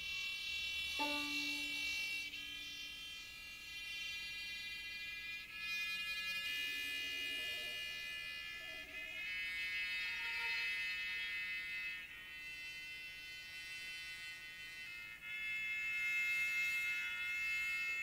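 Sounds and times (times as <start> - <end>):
sustained high electronic tones: 1.0 - 2.0.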